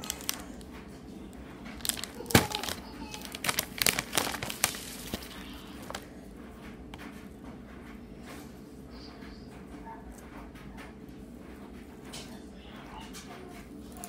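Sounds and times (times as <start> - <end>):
plastic chip bag crinkling: 0.0 - 6.2.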